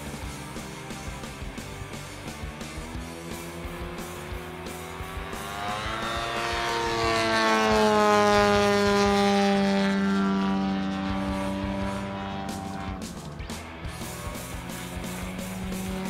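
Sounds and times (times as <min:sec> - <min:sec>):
model plane engine flying past: 0:03.2 - 0:16.0.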